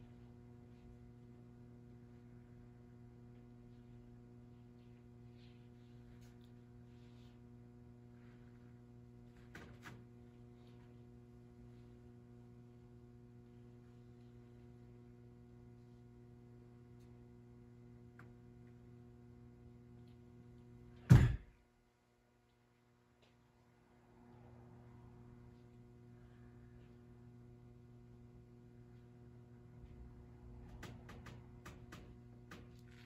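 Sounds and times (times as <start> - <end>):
electrical mains hum: 0.0 - 33.0
loud thump: 21.1 - 21.5.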